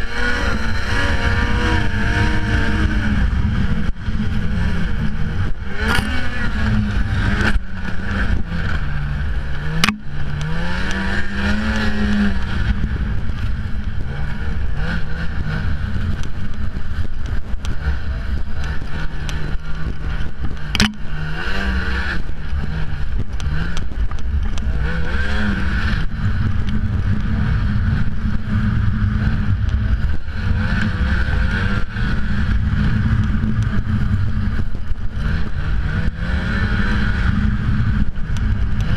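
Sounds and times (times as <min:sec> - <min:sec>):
snowmobile engine revving: 0:00.0 - 0:38.9
sharp clicks: 0:09.8 - 0:11.0.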